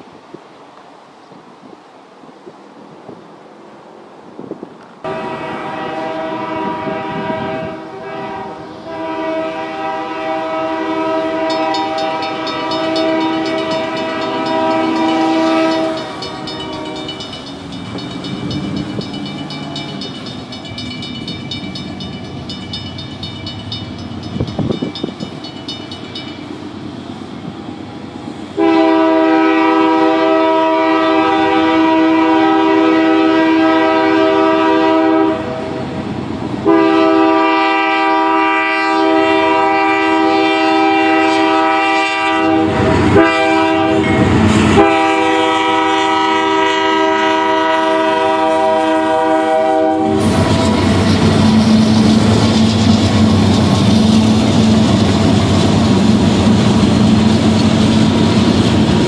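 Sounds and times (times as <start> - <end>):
rumble of passing locomotives: 0.0 - 59.0
locomotive air horn blasts: 5.1 - 17.3, 28.6 - 35.9, 36.6 - 52.1
level-crossing bell ringing: 11.5 - 26.5.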